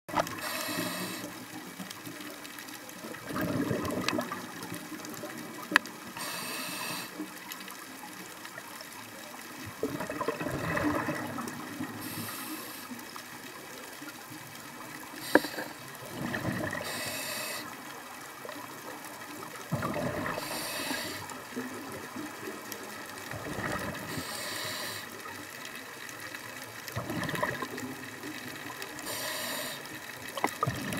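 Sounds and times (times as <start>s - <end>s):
regulator inhale hiss: 0.2s - 1.6s, 6.2s - 7.4s, 11.9s - 13.1s, 15.1s - 16.0s, 16.7s - 17.8s, 20.2s - 21.4s, 24.0s - 25.4s, 29.0s - 30.1s
bubbles rushing: 3.1s - 4.6s, 9.7s - 12.0s, 16.1s - 16.8s, 19.7s - 20.4s, 23.3s - 24.1s, 27.0s - 28.1s, 30.4s - 30.9s.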